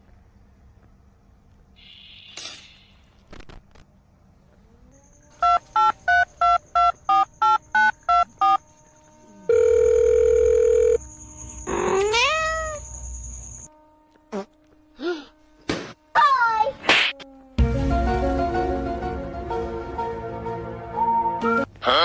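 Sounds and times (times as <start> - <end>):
cat meowing: 11.7 - 12.8.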